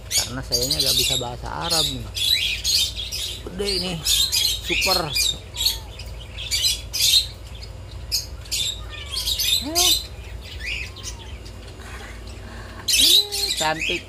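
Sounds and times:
caged birds chirping: 0.0 - 14.0
lower rising bird call: 8.1 - 13.6.

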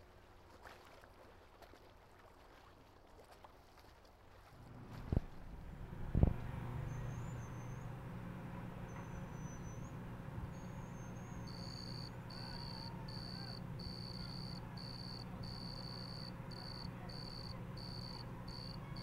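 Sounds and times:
steady low hum: 4.6 - 19.0
cricket chirping: 11.4 - 19.0.

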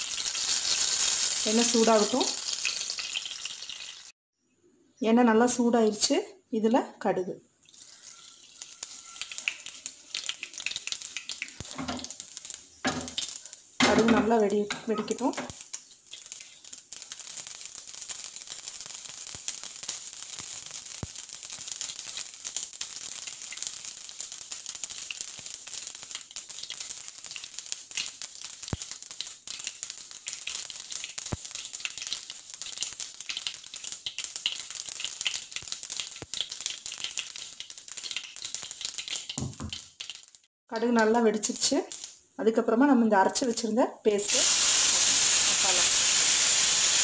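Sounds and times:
seeds sizzling in hot oil: 0.0 - 4.2, 7.6 - 47.0.

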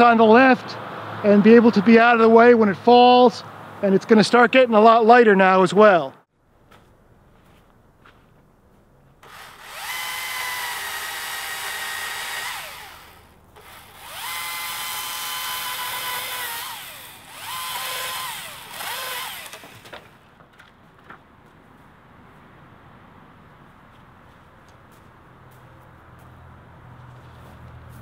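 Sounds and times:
electric chainsaw motor whining: 9.2 - 20.1.

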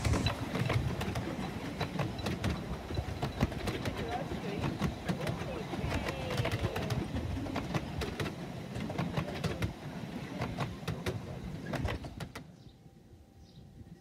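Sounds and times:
miniature train rumbling past: 0.0 - 12.6
wheels clicking over rail joints: 0.0 - 12.6
small birds chirping: 12.5 - 12.8, 13.4 - 13.7.

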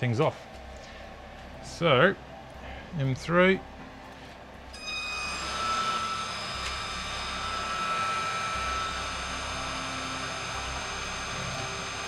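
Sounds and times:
milling machine spindle whine: 4.6 - 12.0.

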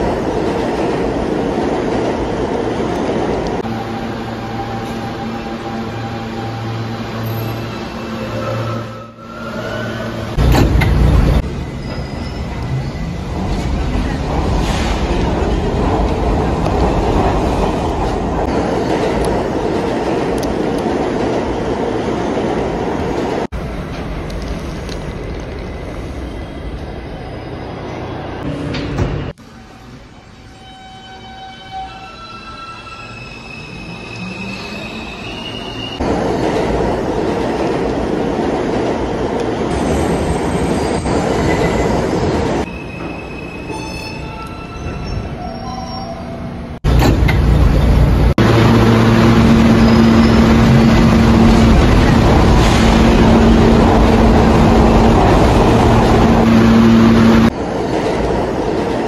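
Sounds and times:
subway train wheels squealing: 3.6 - 10.4, 11.3 - 15.7, 25.6 - 36.2, 39.5 - 46.8, 49.2 - 57.6
train running rumble: 46.8 - 59.0.

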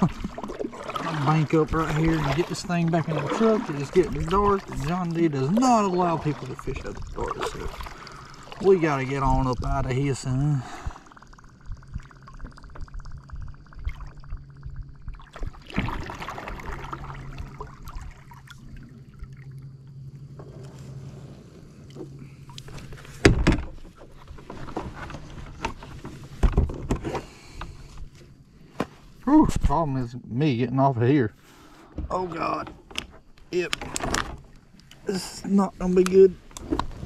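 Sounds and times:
water swishing with paddle strokes: 0.0 - 9.6, 15.2 - 19.6
low steady hum: 0.0 - 37.0.

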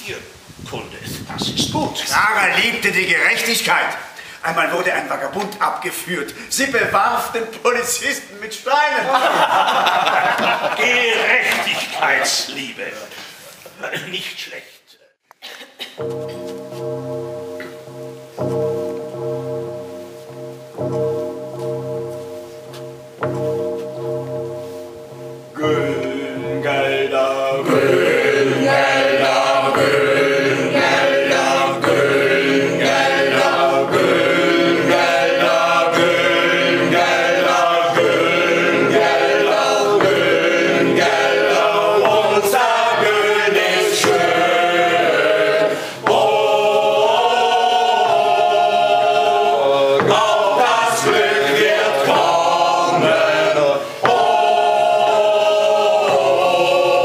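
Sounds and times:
mixed choir singing: 9.2 - 12.2, 25.6 - 57.0.

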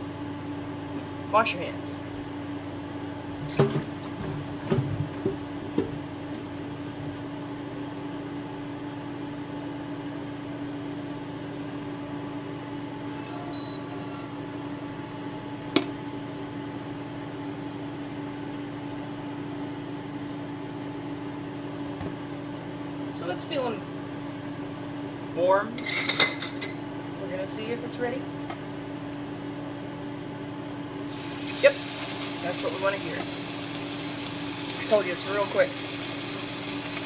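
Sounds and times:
kitchen appliance humming: 30.8 - 37.0.

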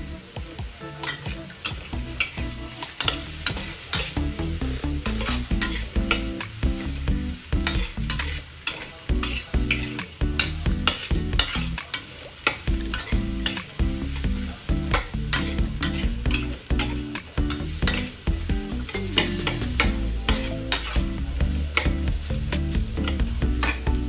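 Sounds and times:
vegetables sizzling in oil: 0.0 - 24.0
spatula scraping a wok: 4.8 - 18.2, 18.9 - 23.9.

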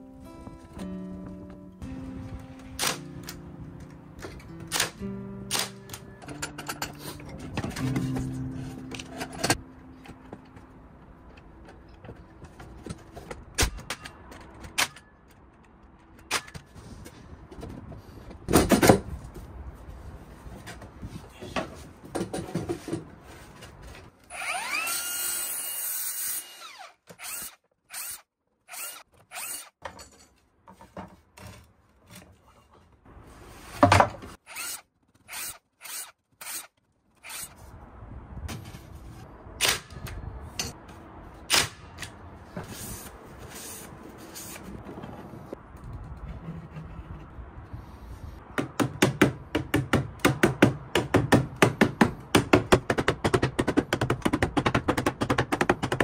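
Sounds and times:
power tool driving fasteners: 24.2 - 29.8.

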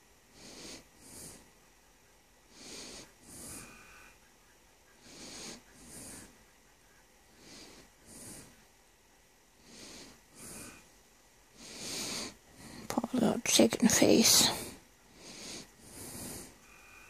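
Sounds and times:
person breathing through nose: 0.3 - 1.5, 2.5 - 4.0, 5.0 - 6.4, 7.3 - 8.6, 9.6 - 10.9, 11.5 - 12.9, 14.2 - 17.0.

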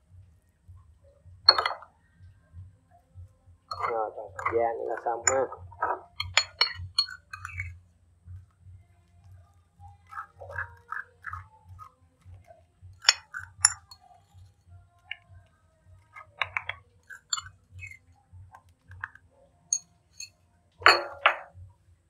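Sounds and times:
metal spoon clinking on dishes: 1.5 - 1.8, 3.7 - 7.8, 13.0 - 14.1, 16.1 - 18.0, 19.7 - 21.5.

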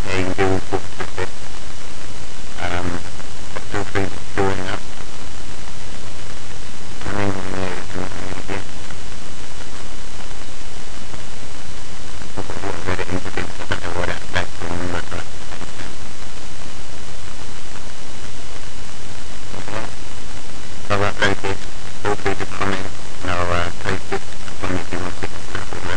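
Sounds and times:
person speaking: 0.0 - 1.4, 2.6 - 5.0, 7.0 - 8.9, 12.3 - 16.0, 19.5 - 20.0, 20.8 - 25.9
loud microphone hiss: 0.0 - 25.9.

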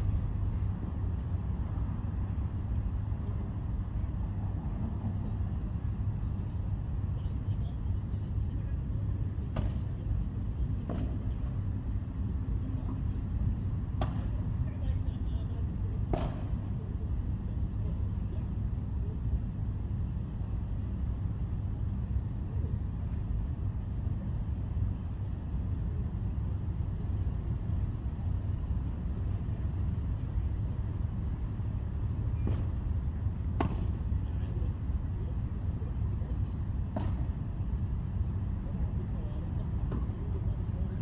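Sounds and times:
steady low rumble: 0.0 - 23.7
high-pitched insect trill: 0.0 - 41.0.

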